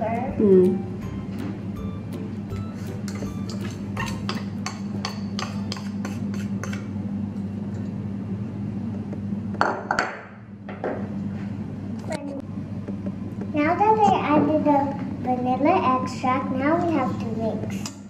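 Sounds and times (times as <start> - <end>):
steady low hum: 0.0 - 18.0
spatula tapping ceramic bowl: 3.0 - 6.8.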